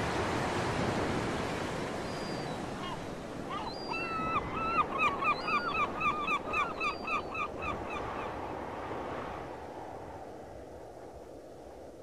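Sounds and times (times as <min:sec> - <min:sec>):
surf rushing: 0:00.0 - 0:03.5.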